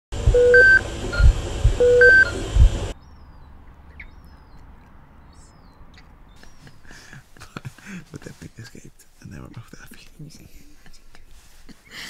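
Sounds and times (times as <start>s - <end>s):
dull low thumps: 0.2s - 3.0s
two-tone electronic beeps: 0.3s - 2.4s.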